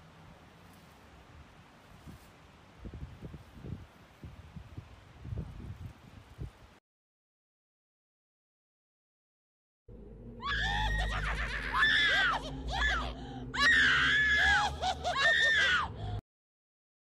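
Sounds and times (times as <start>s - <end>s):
steady low rumble: 9.9s - 16.2s
high-pitched screaming wails: 10.0s - 15.9s.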